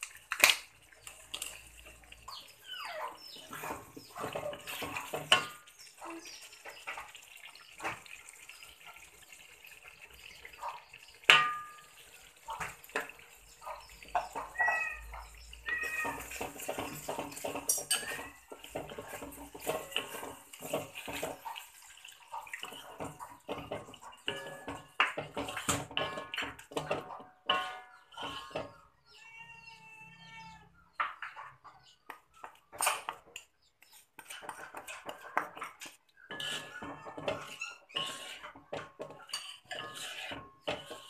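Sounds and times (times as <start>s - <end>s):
utensils scraping a metal wok: 0.4s - 6.8s, 14.1s - 21.8s, 22.5s - 28.8s, 32.8s - 41.0s.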